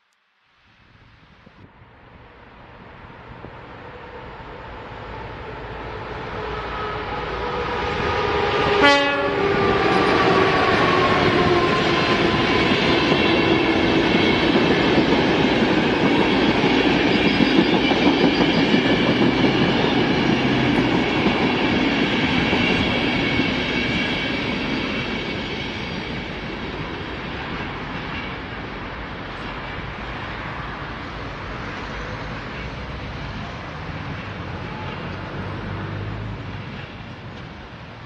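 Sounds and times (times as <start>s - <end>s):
electric locomotive whine: 0.7s - 38.0s
train horn blast: 6.6s - 11.8s
train wheels clattering on rails: 9.4s - 29.7s.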